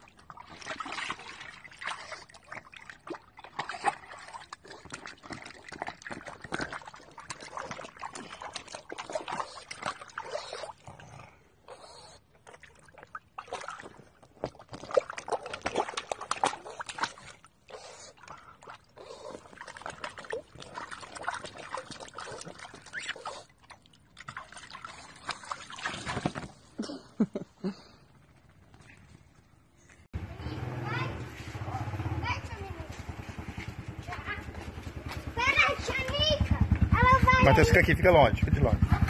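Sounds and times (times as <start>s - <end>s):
dog splashing in water: 0.0s - 11.0s, 12.4s - 26.7s, 30.6s - 39.0s.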